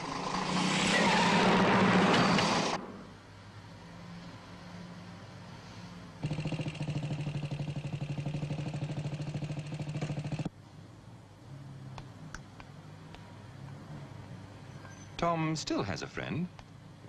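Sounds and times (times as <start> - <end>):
small motorcycle engine idling: 6.2 - 10.5.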